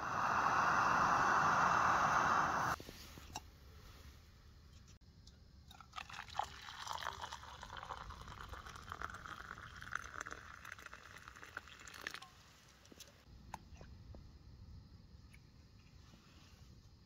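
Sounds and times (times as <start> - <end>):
hot water pouring into a cup: 5.7 - 12.3.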